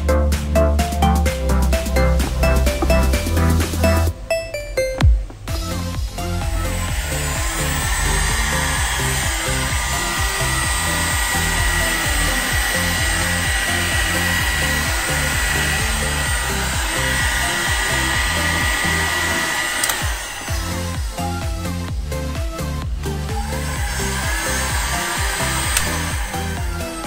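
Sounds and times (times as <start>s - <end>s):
heat gun blower running: 5.5s - 27.0s.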